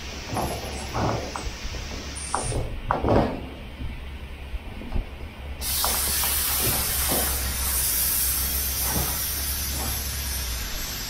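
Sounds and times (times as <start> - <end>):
air hissing out of tire: 0.0 - 2.7, 5.6 - 11.0.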